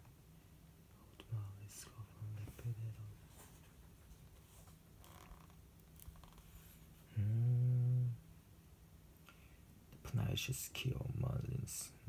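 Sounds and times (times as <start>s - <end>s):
man humming a low note: 7.1s - 8.2s.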